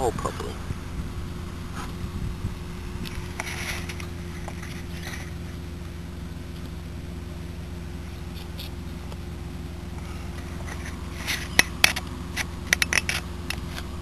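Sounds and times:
steady low hum: 0:00.0 - 0:14.0
cardboard and plastic clicks and scrapes: 0:10.4 - 0:13.9.

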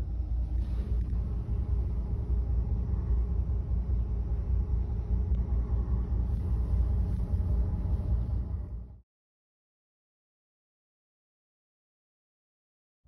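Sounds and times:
ship engine low rumble: 0:00.0 - 0:09.0.

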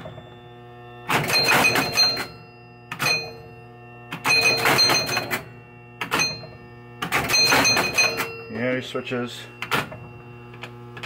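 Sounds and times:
pinball chime tones: 0:00.0 - 0:10.6
steady low hum: 0:00.0 - 0:11.0
clatter of relays and score reels: 0:01.1 - 0:03.4, 0:04.2 - 0:06.4, 0:07.0 - 0:08.6.

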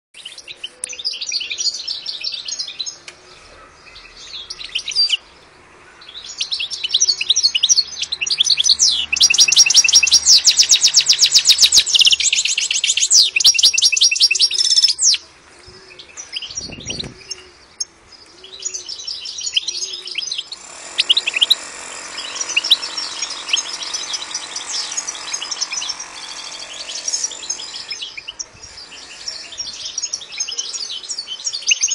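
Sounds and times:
goldfinch twittering song: 0:06.0 - 0:15.2, 0:18.2 - 0:31.9.

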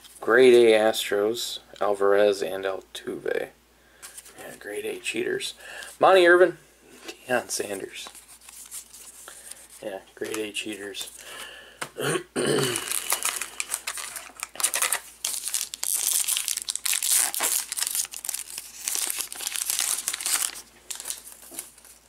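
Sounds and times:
wrapper crinkling and tearing: 0:12.8 - 0:22.0.

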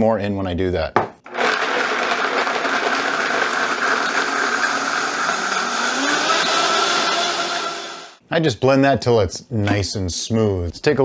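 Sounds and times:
blender running: 0:01.3 - 0:08.2.

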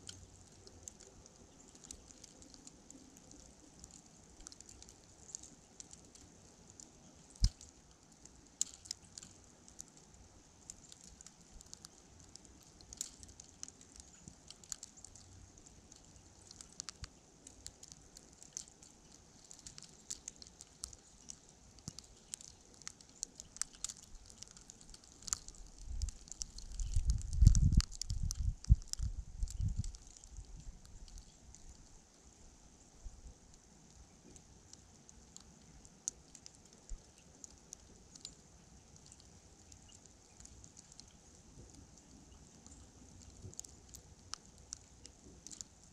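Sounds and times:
wind buffeting microphone: 0:25.8 - 0:30.8.

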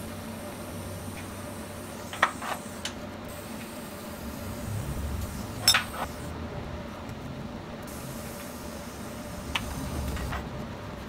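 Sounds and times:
welding arc hissing: 0:00.0 - 0:06.4, 0:07.8 - 0:10.5
steel pieces clinking: 0:05.6 - 0:06.0.

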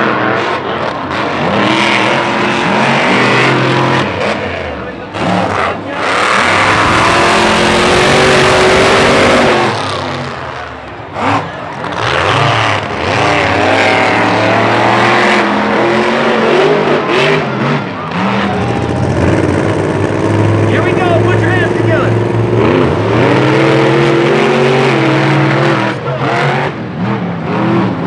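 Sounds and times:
truck engines revving hard: 0:00.0 - 0:28.0.

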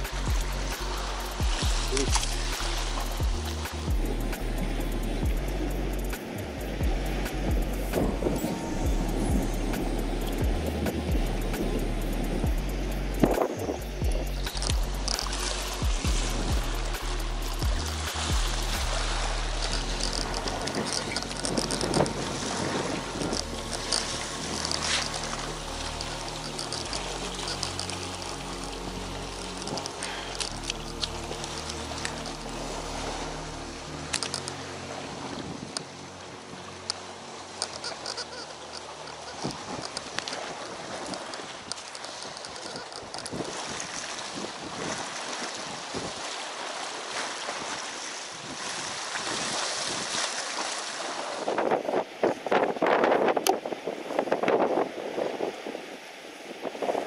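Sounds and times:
low motor hum: 0:00.0 - 0:40.1
wind and sea hiss: 0:00.0 - 0:57.0.

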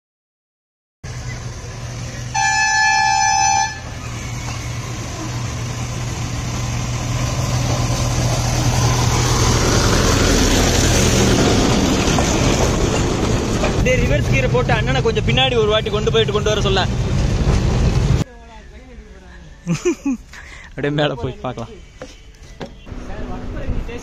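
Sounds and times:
train engine hum and wheel rumble: 0:01.1 - 0:18.3
miniature train horn blast: 0:02.3 - 0:04.4.

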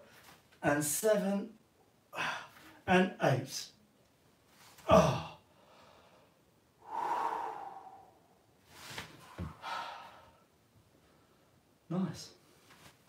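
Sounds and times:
man exhaling heavily: 0:06.8 - 0:08.4, 0:09.2 - 0:10.4.

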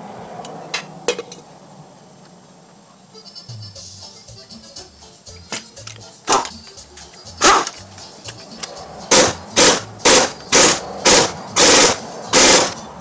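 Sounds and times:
air impact wrench hammering: 0:05.5 - 0:06.6, 0:07.4 - 0:12.9.

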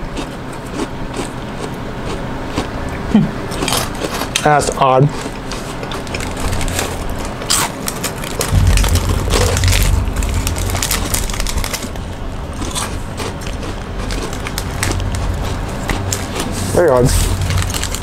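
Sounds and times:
low rumble: 0:08.5 - 0:18.0.

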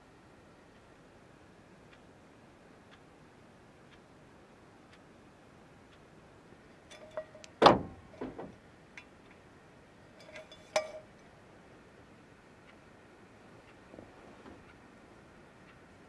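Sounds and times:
clock ticking: 0:03.8 - 0:04.2, 0:14.6 - 0:16.0
metal mug and hooks clinking: 0:06.9 - 0:07.5, 0:10.2 - 0:11.1.

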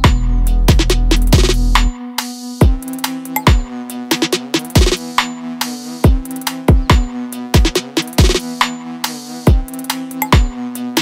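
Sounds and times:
deep kick drum: 0:00.0 - 0:01.9, 0:02.6 - 0:02.8, 0:06.1 - 0:08.4, 0:09.5 - 0:09.7
drum machine beat: 0:00.0 - 0:11.0.

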